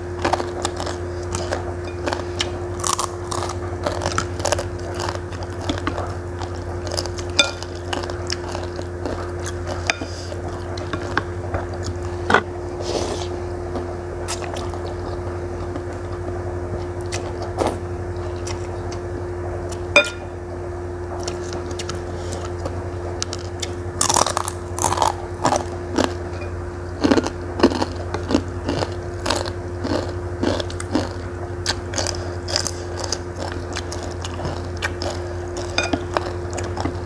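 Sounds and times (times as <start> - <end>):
steady low hum: 0.0 - 37.0
noodles slurped and chewed: 27.0 - 37.0.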